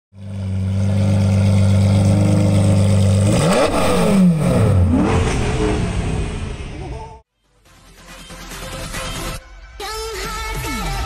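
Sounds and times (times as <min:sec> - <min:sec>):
sports car engine idling and revving: 0:00.2 - 0:07.2.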